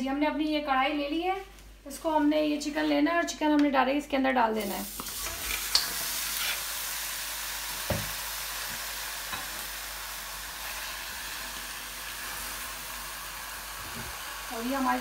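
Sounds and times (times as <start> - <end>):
chicken sizzling in a pan: 4.6 - 15.0.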